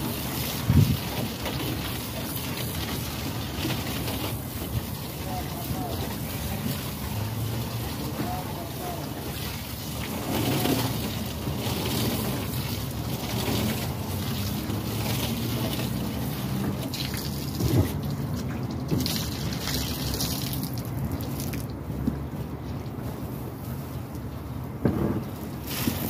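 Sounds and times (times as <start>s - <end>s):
wind noise: 0.0s - 1.4s
water running from a hose: 0.0s - 21.8s, 25.6s - 26.0s.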